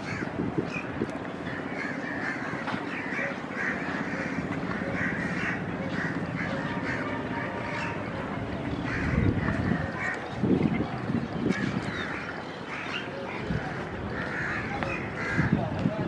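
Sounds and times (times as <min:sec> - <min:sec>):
crows cawing: 0:00.0 - 0:00.3, 0:01.5 - 0:08.0, 0:08.7 - 0:10.2, 0:11.5 - 0:15.6.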